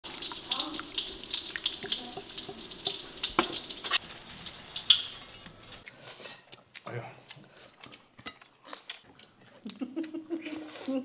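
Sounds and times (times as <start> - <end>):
food sizzling: 0.0 - 5.9.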